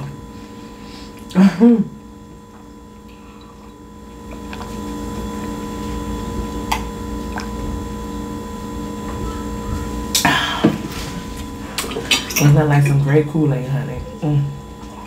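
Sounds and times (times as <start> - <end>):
person gulping a drink: 3.0 - 7.8.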